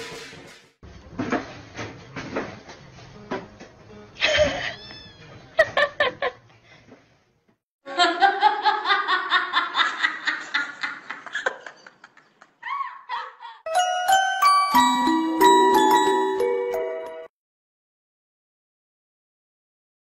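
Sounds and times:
person laughing: 4.2s - 4.9s.

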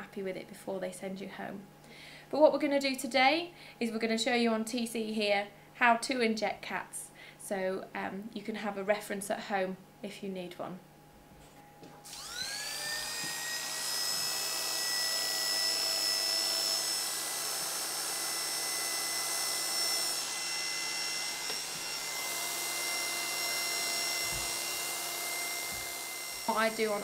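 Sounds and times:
electric hair clippers whining: 12.0s - 27.0s.

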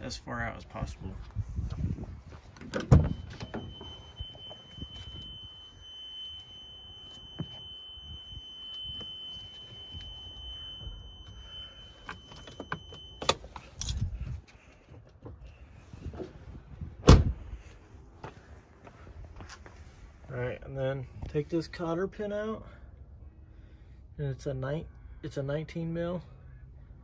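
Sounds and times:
high-pitched electronic warning tone: 2.9s - 13.7s
keys jangling: 12.2s - 14.3s
loud thump: 17.0s - 17.4s.

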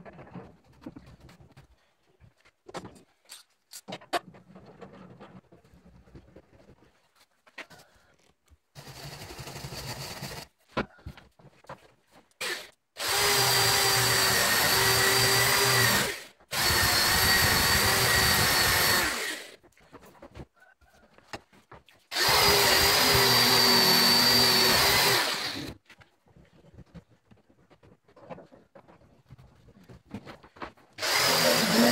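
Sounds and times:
drill with wire brush on steel: 8.8s - 10.5s, 12.4s - 19.6s, 22.1s - 25.8s, 31.0s - 31.9s.

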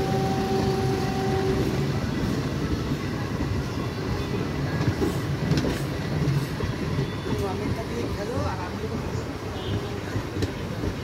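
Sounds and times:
train hum: 0.0s - 11.0s
train wheels rumbling on rails: 0.0s - 11.0s.

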